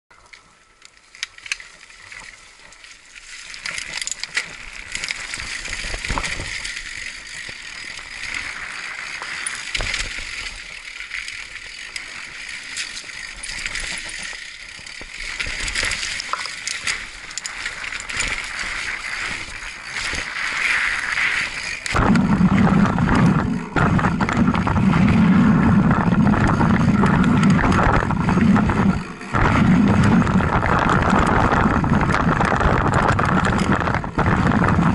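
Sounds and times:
bike rattling and clicking: 0:00.1 - 0:34.9
bike tyre and trail noise: 0:00.1 - 0:34.9
low rumble: 0:21.8 - 0:34.9.

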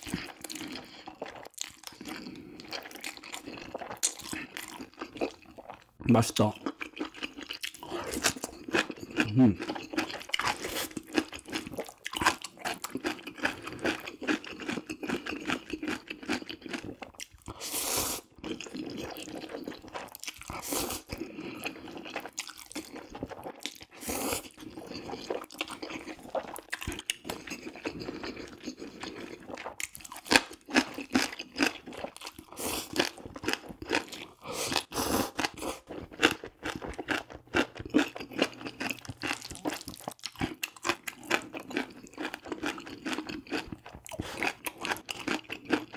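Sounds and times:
wet chewing: 0:00.0 - 0:45.9
slurping noodles: 0:07.8 - 0:11.8, 0:17.5 - 0:19.9, 0:20.5 - 0:29.7, 0:30.8 - 0:36.2.

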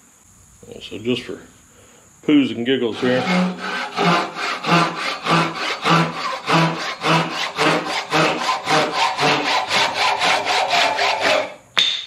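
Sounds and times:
hand saw cutting wood: 0:02.9 - 0:11.6.

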